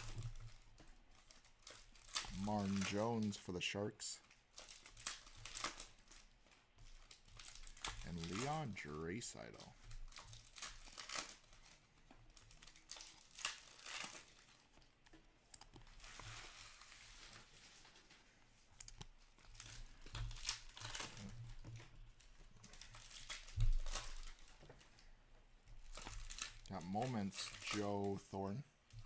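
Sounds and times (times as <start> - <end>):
wrappers crinkling and tearing: 0.0 - 25.1, 25.7 - 29.0
cards sliding and shuffling: 26.8 - 28.2.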